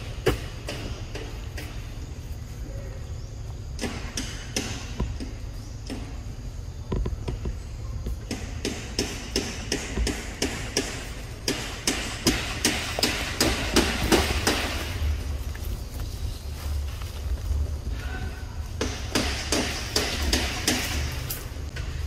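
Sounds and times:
sharp knocks: 3.8s - 6.3s, 8.2s - 15.0s, 18.8s - 21.1s.

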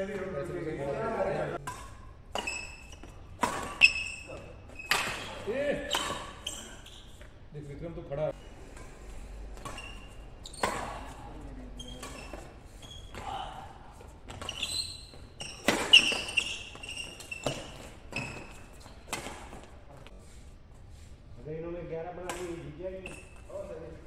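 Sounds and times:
rackets hitting shuttlecock: 1.6s - 6.4s, 8.8s - 11.3s, 15.4s - 19.7s, 22.2s - 23.3s
shoes squeaking on court: 1.8s - 7.4s, 9.5s - 20.2s, 23.0s - 23.8s.

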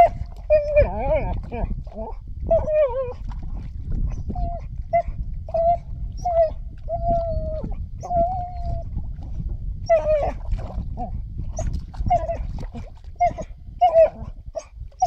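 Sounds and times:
dog whining: 0.0s - 3.2s, 4.1s - 8.9s, 9.9s - 10.4s, 11.0s - 12.5s, 13.2s - 14.7s
low rumble: 0.0s - 15.0s.

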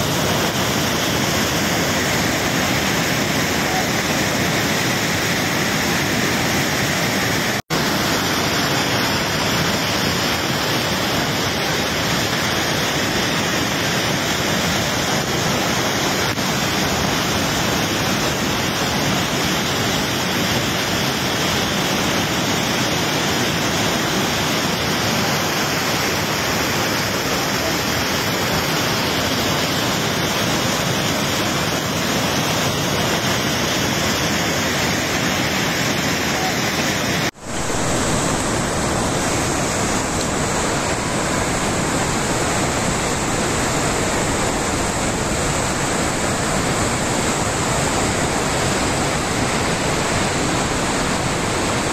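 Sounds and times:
waterfall and flooded river rushing: 0.0s - 51.9s.

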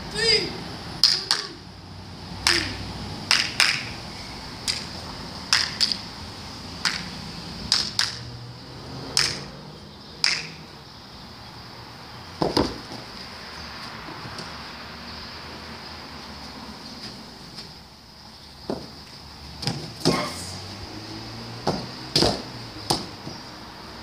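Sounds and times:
football taps by foot: 18.7s - 18.9s.

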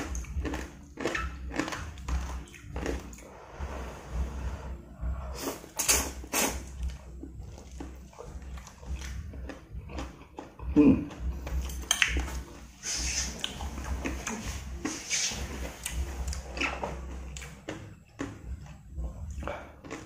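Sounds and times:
chewing with wet mouth clicks: 0.0s - 3.2s, 5.4s - 12.4s, 13.3s - 15.0s, 15.8s - 18.8s, 19.4s - 20.0s
slurping noodles: 0.0s - 10.2s, 12.2s - 17.4s.

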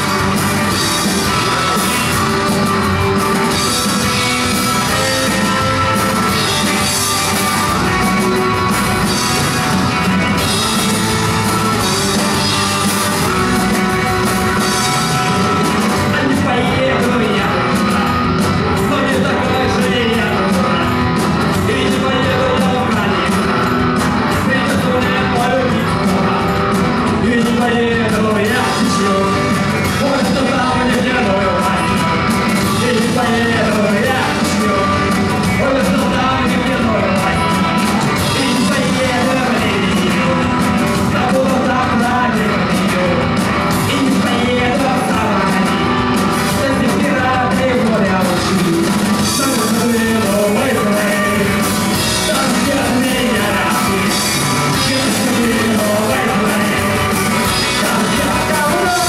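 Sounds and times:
rock band playing live: 0.0s - 59.0s
sung and shouted vocals: 46.5s - 59.0s.

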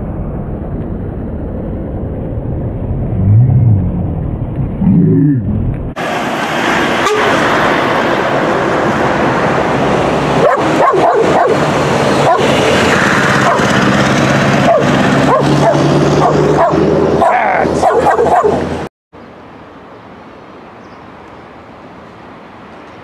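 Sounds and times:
truck passing: 0.0s - 18.9s
small dog barking: 10.4s - 11.6s, 12.2s - 12.5s, 13.4s - 13.7s, 14.7s - 18.6s.

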